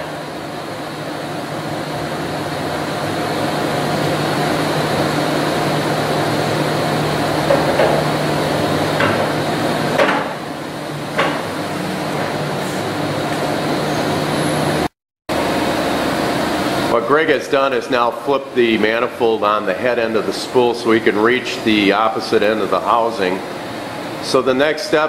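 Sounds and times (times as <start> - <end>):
steady mechanical hum: 0.0 - 25.0
sharp metal knocks: 10.0 - 10.4.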